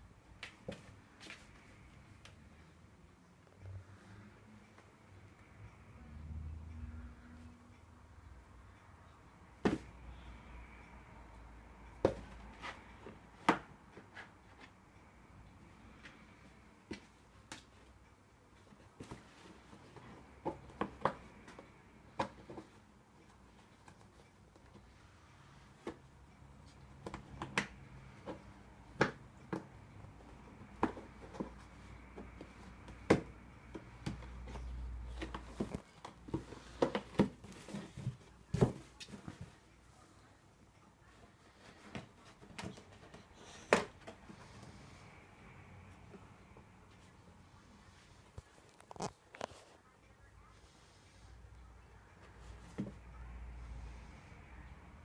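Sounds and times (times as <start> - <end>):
cardboard box knocking and scraping: 33.0 - 38.9.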